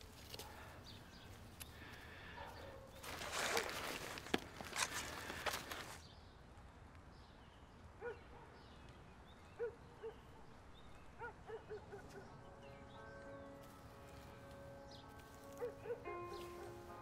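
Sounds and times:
soft music chord: 0:12.0 - 0:17.0.

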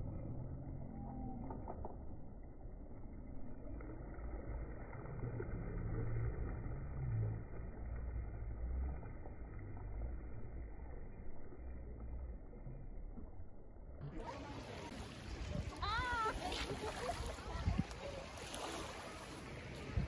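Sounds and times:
choppy lake water: 0:00.0 - 0:20.0
wind buffeting microphone: 0:14.9 - 0:20.0.

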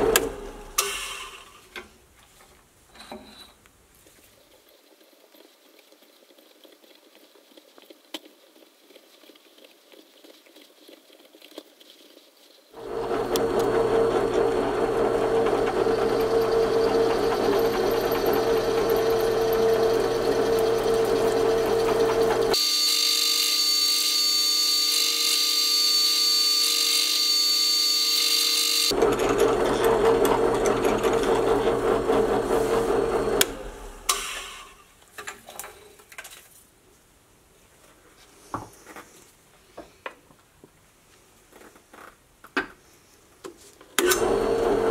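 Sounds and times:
drill press motor hum: 0:12.8 - 0:34.7, 0:44.0 - 0:44.9
high-pitched drill whine: 0:15.4 - 0:29.0.

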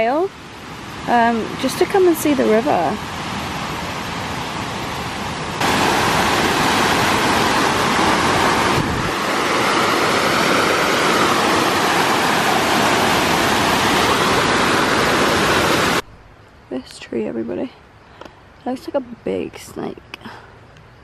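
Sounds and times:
stream rushing over rocks: 0:00.0 - 0:16.0.

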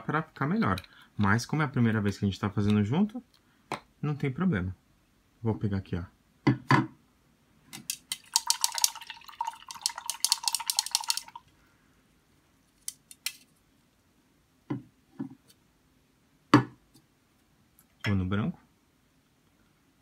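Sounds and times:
paintbrush rattling in cup of water: 0:07.9 - 0:11.4.

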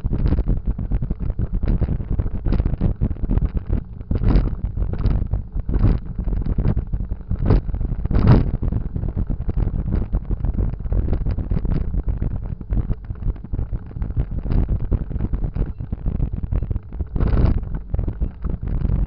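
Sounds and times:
motorcycle running noise: 0:00.0 - 0:19.0
wind buffeting microphone: 0:00.0 - 0:19.0.

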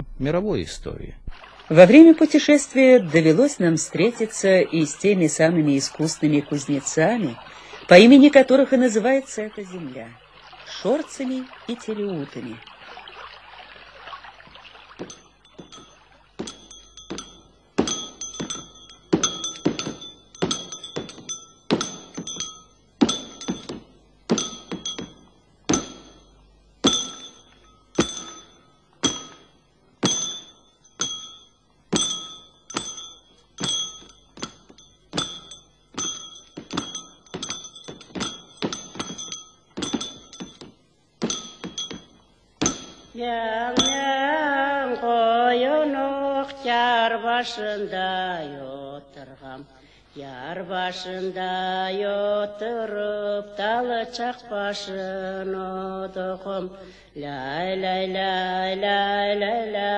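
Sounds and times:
hammer ringing on anvil: 0:15.0 - 0:43.2, 0:43.8 - 0:44.3.

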